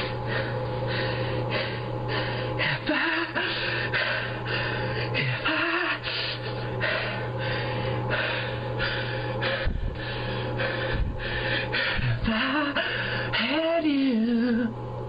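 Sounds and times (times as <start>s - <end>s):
man breathing heavily: 0.0s - 13.4s
low hum: 0.0s - 15.0s.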